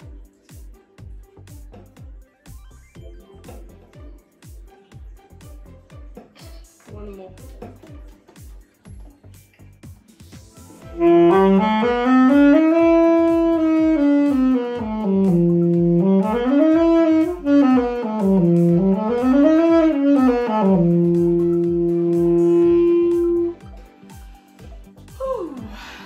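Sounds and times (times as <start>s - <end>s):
alto saxophone playing scales: 10.8s - 23.6s.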